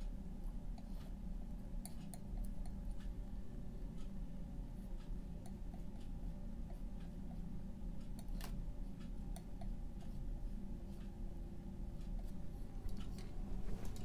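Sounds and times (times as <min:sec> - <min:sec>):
low hum: 0:09.6 - 0:14.0.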